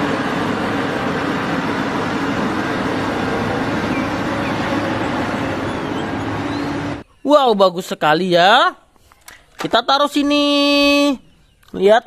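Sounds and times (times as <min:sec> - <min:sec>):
heavy diesel engine running: 0:00.0 - 0:07.0.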